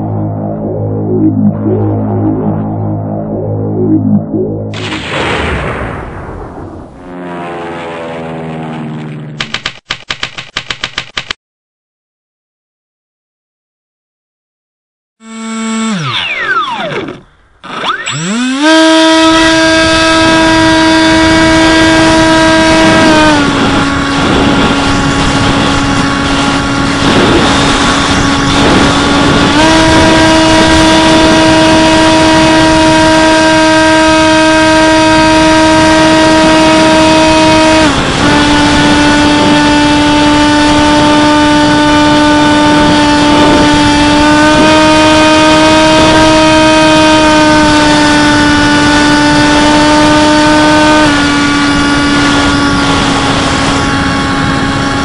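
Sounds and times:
electric propeller motor whine: 0.0 - 4.8, 6.9 - 9.6, 15.2 - 55.0
wind rush: 19.2 - 55.0.

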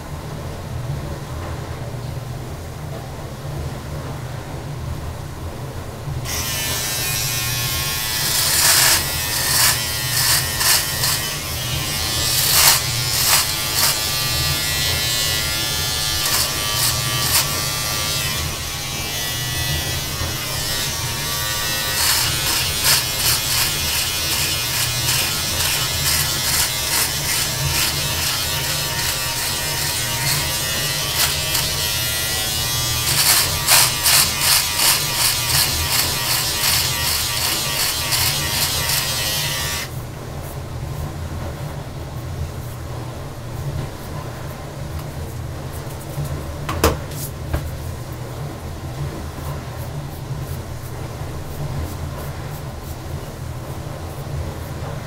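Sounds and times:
beard trimmer buzzing: 6.3 - 39.9
crackling trimmer strokes: 6.3 - 39.9.

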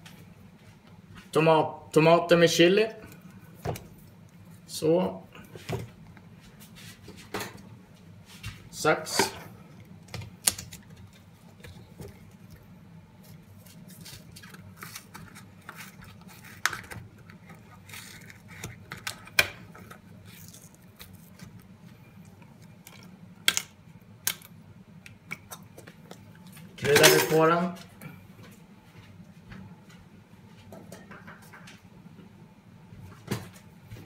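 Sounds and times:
kitchen handling clicks and knocks: 26.8 - 27.5.

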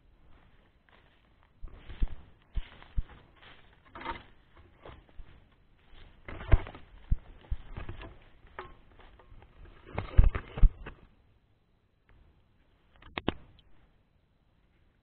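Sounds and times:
footsteps through dry fronds and grass: 0.0 - 11.1.

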